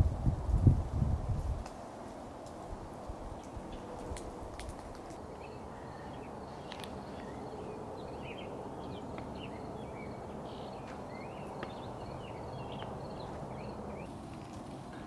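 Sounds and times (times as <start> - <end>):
low rushing background noise: 0.0 - 15.0
small birds chirping: 3.3 - 15.0.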